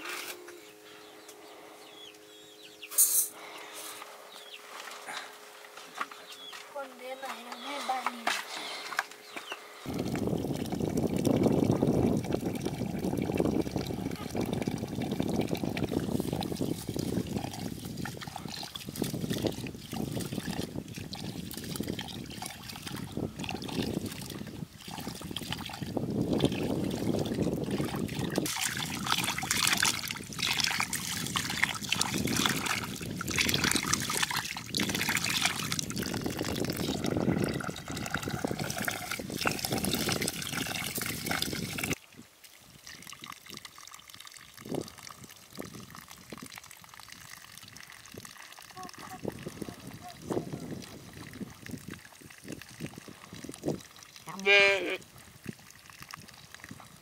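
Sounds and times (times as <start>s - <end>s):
hose water running into metal pot: 9.9s - 54.4s
water poured onto ground: 9.9s - 57.0s.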